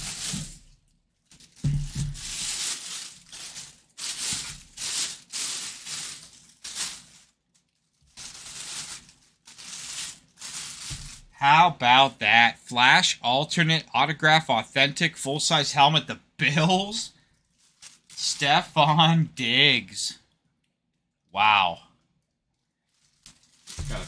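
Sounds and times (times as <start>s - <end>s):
plastic bag crinkling: 0.0s - 11.4s, 17.2s - 18.4s, 22.2s - 24.0s.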